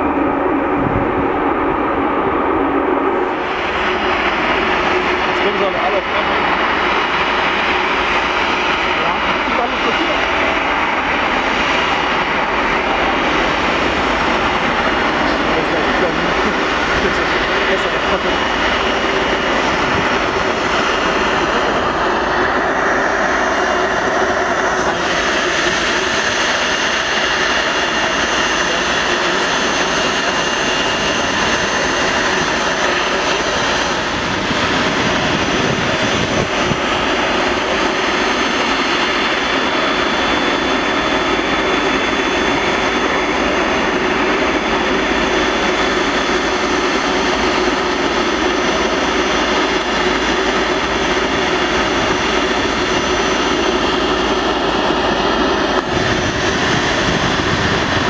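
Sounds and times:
jet engines idling: 0.0 - 58.0.

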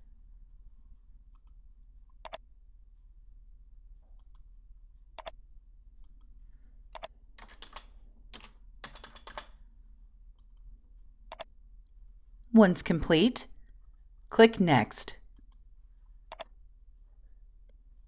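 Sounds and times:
computer mouse clicks: 1.3 - 1.6, 2.2 - 2.4, 4.2 - 4.5, 5.2 - 5.4, 6.0 - 6.3, 6.9 - 9.5, 11.3 - 11.5, 16.3 - 16.6.

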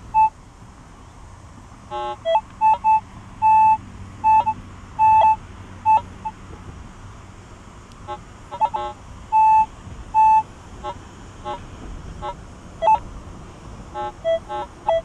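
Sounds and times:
metal detector beeps: 0.0 - 0.4, 1.9 - 6.1, 8.6 - 10.5, 12.2 - 13.0, 14.0 - 15.0.

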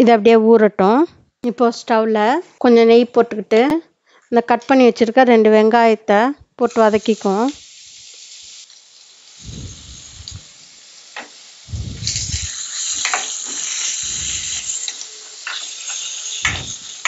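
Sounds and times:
onions sizzling in hot fat: 6.6 - 17.0.

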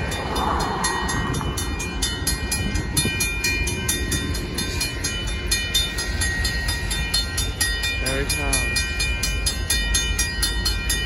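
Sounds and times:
car passing: 0.0 - 3.0
railroad crossing bell ringing: 0.0 - 11.0.

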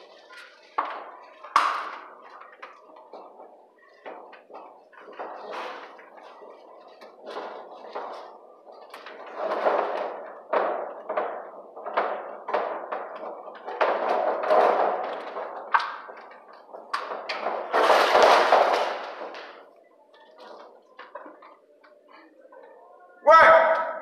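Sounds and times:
rustling scrape: 2.8 - 11.0, 11.7 - 21.6.

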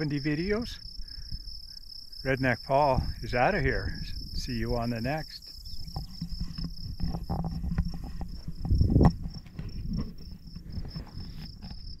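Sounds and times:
insects trilling: 0.0 - 12.0
camera handling rustles and knocks: 5.9 - 12.0.

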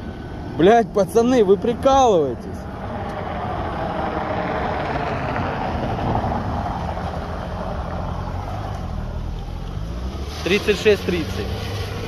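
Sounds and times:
car tyres hissing on wet road: 2.8 - 12.0.

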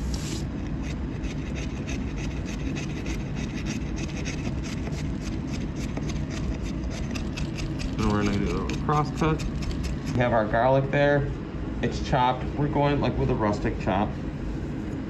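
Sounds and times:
steady low rumble: 5.1 - 15.0.

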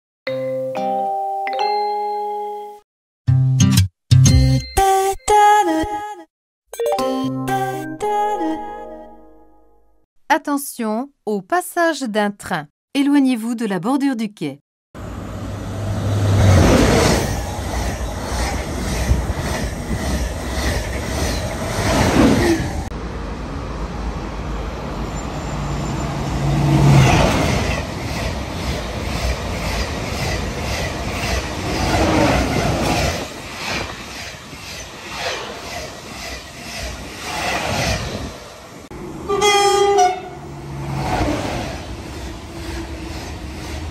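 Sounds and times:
train passing at speed: 15.0 - 43.9
rush of air: 32.0 - 38.8
train horn blast: 39.2 - 41.0.

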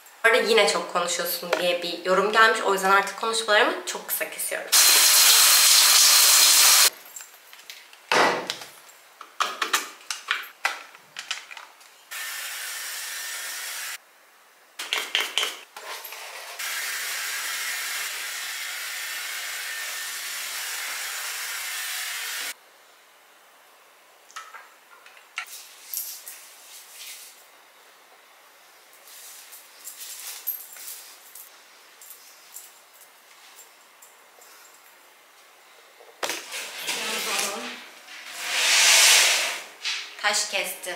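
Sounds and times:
shower head spraying water: 4.8 - 6.9, 38.3 - 39.6
steady quiet hiss: 22.5 - 38.4
handling knocks and rustles: 29.0 - 35.0.

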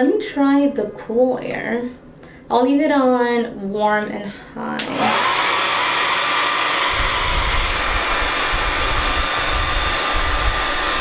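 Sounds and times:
hair dryer blowing air: 4.8 - 11.0.

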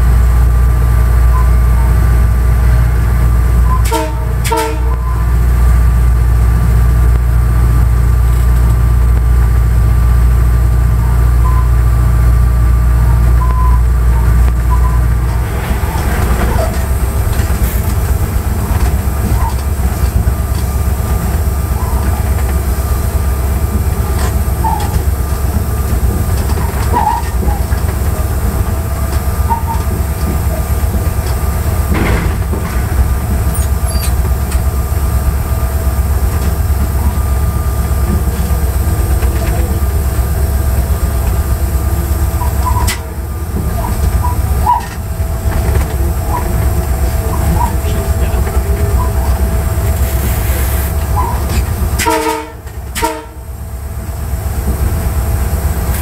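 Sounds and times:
diesel locomotive engine rumble: 0.0 - 56.0
faint short squeaks: 13.0 - 18.0, 33.5 - 34.2, 42.4 - 43.2.

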